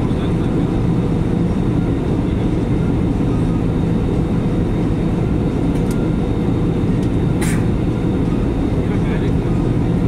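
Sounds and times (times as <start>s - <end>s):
jet engines rumbling in cabin: 0.0s - 10.0s.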